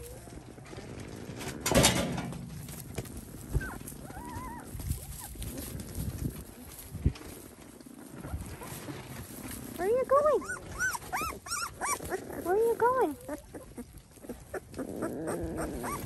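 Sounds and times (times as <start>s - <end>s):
soft knocks and shuffling: 0.0s - 11.1s
puppy whimpering squeaks: 3.5s - 5.4s, 10.2s - 16.0s.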